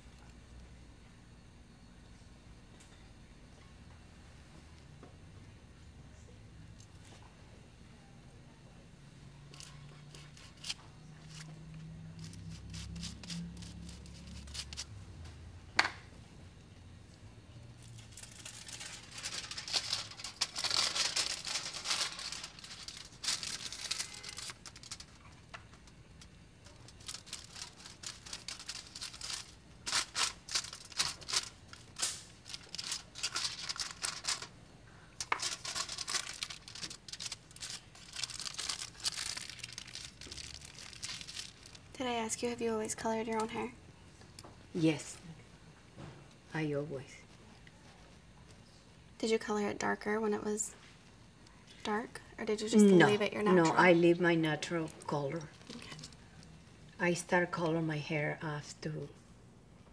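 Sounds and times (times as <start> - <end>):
aluminium foil crinkling: 9.5 - 14.9, 17.8 - 43.7, 54.6 - 56.5.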